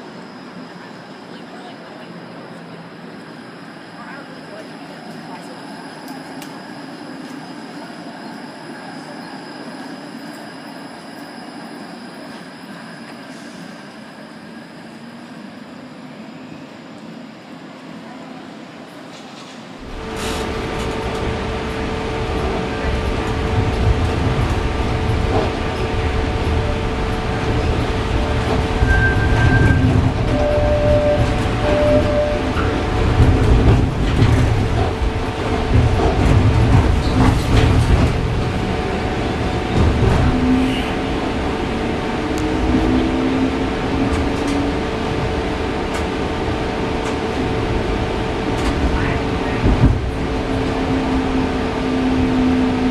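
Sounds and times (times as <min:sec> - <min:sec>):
streetcar wheels rumbling: 0:17.0 - 0:52.9.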